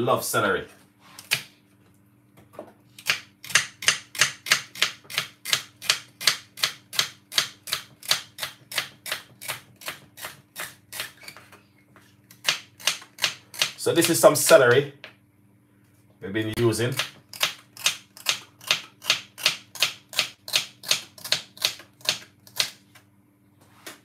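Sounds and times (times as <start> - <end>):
knife chopping on wooden board: 3.0 - 11.2.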